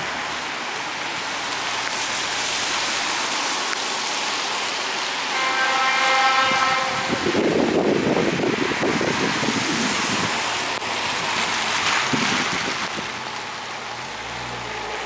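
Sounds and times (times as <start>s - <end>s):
rain: 0.0s - 15.0s
wind: 0.0s - 15.0s
distant locomotive horn: 5.3s - 7.5s.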